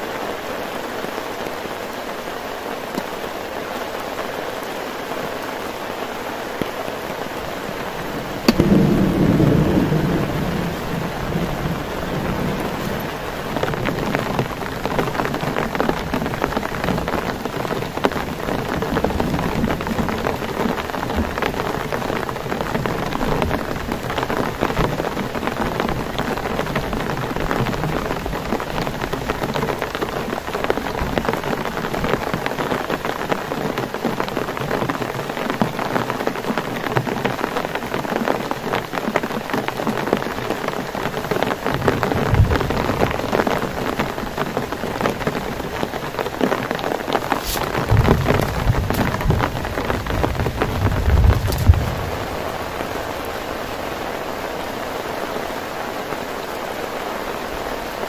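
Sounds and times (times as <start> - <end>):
heavy rain falling: 0.0 - 58.0
low rumble of thunder: 8.2 - 17.0, 41.6 - 44.4, 47.4 - 53.9.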